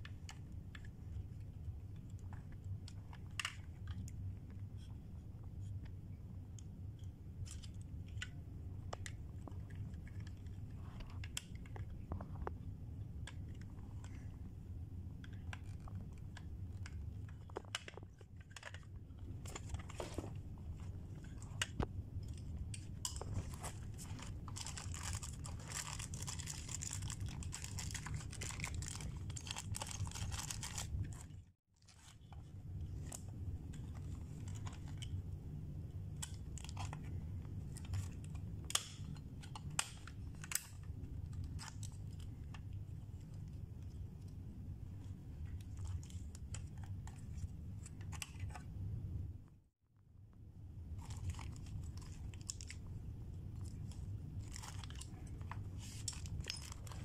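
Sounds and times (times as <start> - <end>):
steady low hum: 0.0 - 57.0
plastic bag crinkling: 23.2 - 32.1.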